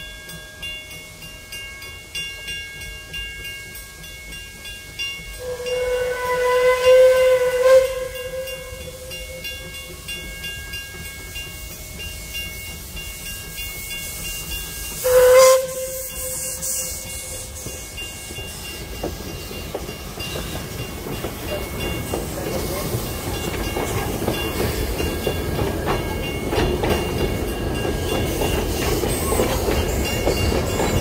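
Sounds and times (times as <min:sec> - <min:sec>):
level-crossing bell ringing: 0:00.0 - 0:31.0
steam hissing: 0:01.2 - 0:31.0
steam locomotive whistle: 0:05.4 - 0:10.1, 0:11.6 - 0:19.5, 0:28.3 - 0:31.0.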